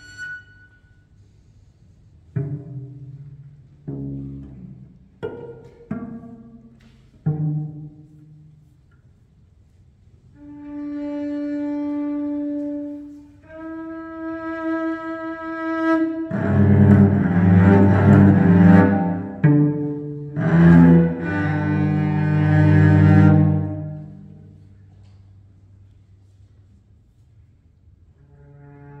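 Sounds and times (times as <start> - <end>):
plucked cello notes: 2.3 - 8.5, 10.4 - 24.6
rough bowed cello chords: 2.3 - 8.7, 10.4 - 24.6, 28.2 - 29.0
bowed cello notes: 2.3 - 8.8, 10.4 - 24.8, 28.2 - 29.0.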